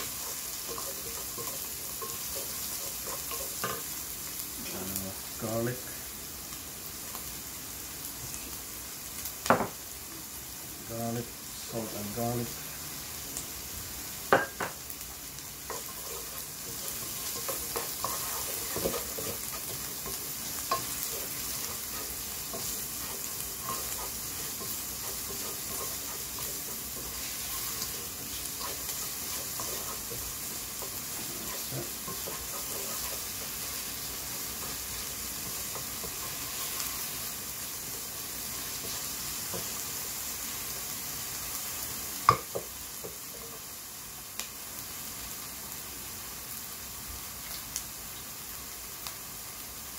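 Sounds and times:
wooden spoon scraping a pan: 0.0s - 4.0s, 15.6s - 40.1s
onion sizzling in a frying pan: 0.0s - 49.9s.

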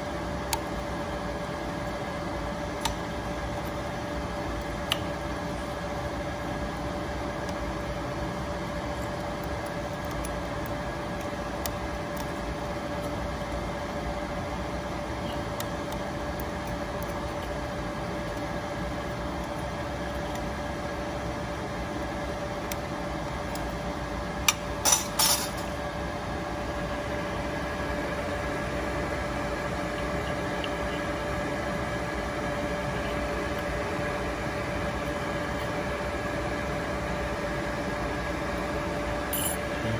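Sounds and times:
machine humming: 25.4s - 39.9s.

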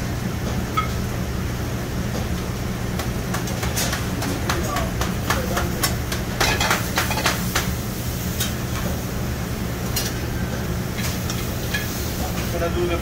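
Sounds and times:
low hum of kitchen equipment: 0.0s - 13.0s.

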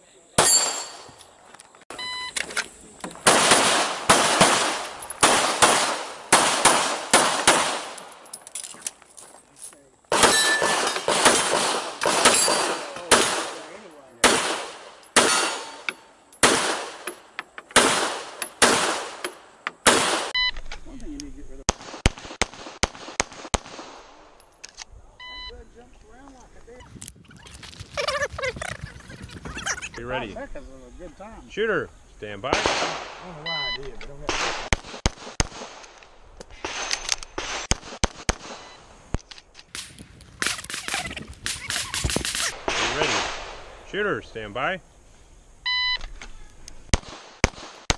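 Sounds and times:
pistol shots: 3.2s - 8.1s, 10.1s - 17.1s, 17.7s - 19.2s, 19.8s - 20.4s, 21.7s - 24.2s, 32.5s - 33.2s, 36.5s - 38.7s, 46.9s - 47.9s
rustling noise: 26.0s - 30.0s, 39.1s - 42.6s.

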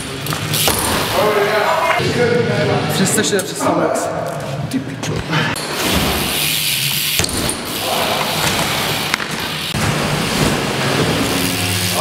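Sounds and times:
bike tyres rumbling over ramps: 5.7s - 12.0s.

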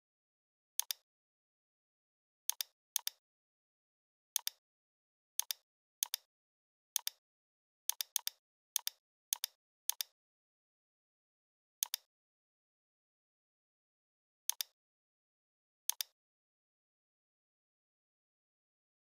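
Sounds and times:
computer mouse clicking: 0.8s - 1.0s, 2.5s - 3.2s, 5.4s - 6.3s, 7.9s - 10.2s, 11.8s - 12.1s, 14.5s - 14.7s, 15.9s - 16.2s.

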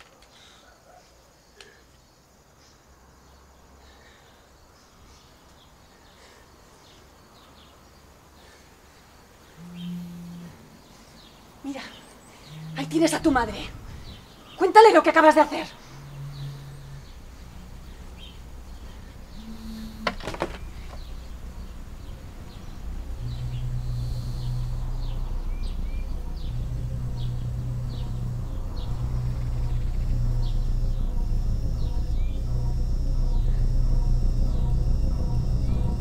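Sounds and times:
insect buzzes: 8.4s - 36.0s
low steady drone: 9.5s - 11.4s, 12.2s - 36.0s
bird chirps: 11.2s - 33.5s.

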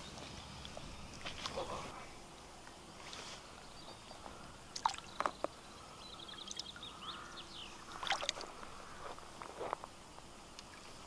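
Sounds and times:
bird chirping faintly: 3.1s - 9.0s
water splashing and dripping: 4.7s - 5.3s, 7.9s - 8.7s.

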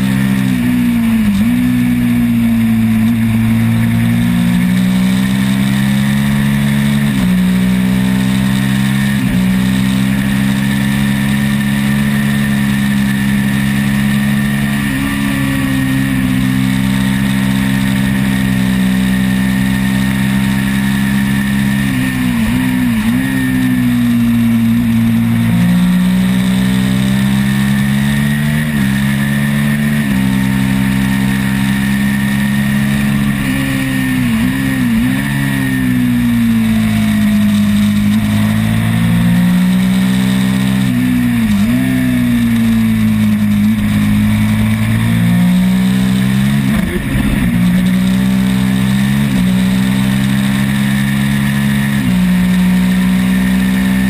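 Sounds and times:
motorcycle engine at high revs: 0.0s - 54.0s
wind noise: 46.6s - 48.1s.

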